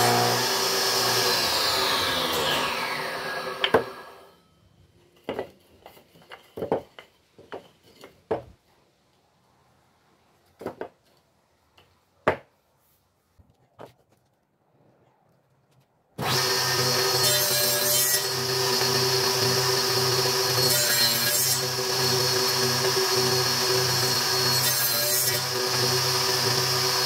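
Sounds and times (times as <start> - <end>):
table saw blade spinning down: 0.0 - 4.3.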